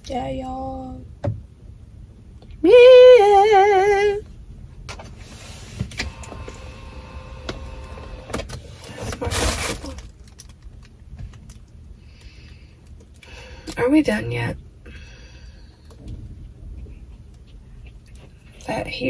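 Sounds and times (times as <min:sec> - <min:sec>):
faint steady whine: 0:00.0 - 0:19.0.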